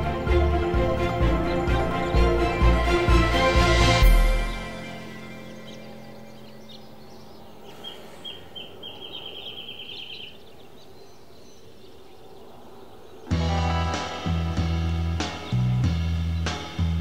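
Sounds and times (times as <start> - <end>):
outdoor background noise: 0.0 - 17.0
small bird chirping: 5.2 - 13.4
music with guitar and drums: 13.3 - 17.0.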